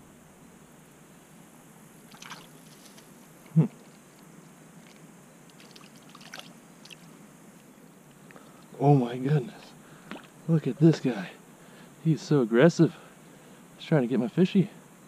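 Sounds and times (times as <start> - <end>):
faint splashing in water: 2.1 - 3.1, 4.8 - 7.1.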